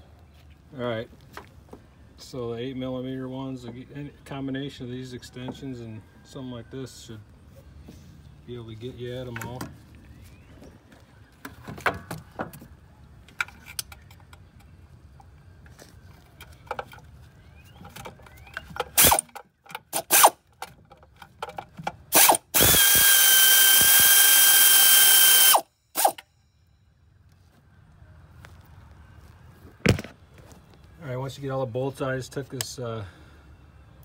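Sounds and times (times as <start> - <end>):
cordless power tool running: 22.1 - 26.2.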